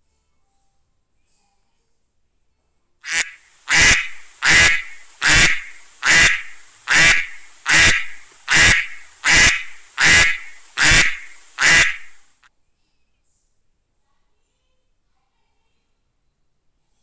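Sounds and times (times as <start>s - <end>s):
duck quacking: 3.0s - 12.3s
steady high hiss: 3.0s - 12.5s.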